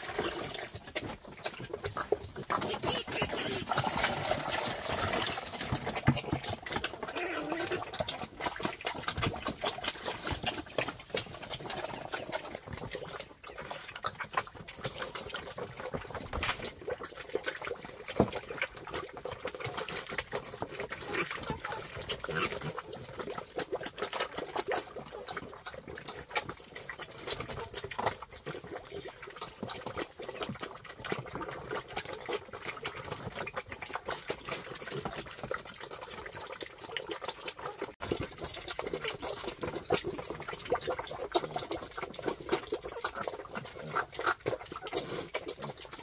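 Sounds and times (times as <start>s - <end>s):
wild boars chewing and slurping: 0.0s - 46.0s.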